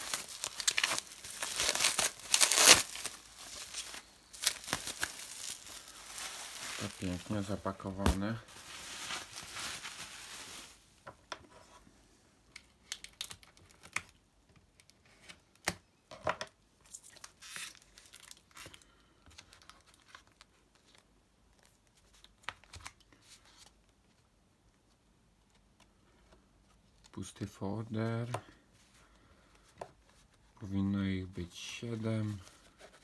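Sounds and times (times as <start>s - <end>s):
packing tape peeling: 0.0s - 7.0s
cardboard package crinkling: 0.0s - 10.8s.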